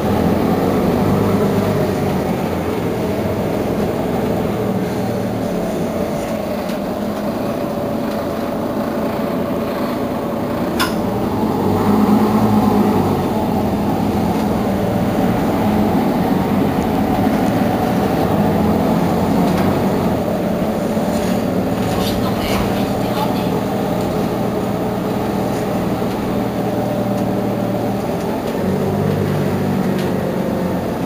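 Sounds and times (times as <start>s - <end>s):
bus engine idling: 0.0s - 31.0s.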